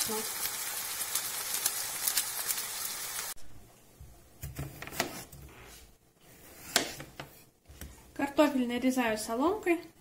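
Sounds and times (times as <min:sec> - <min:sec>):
food sizzling in frying pan: 0:00.0 - 0:03.4
knife slicing on cutting board: 0:04.5 - 0:07.3.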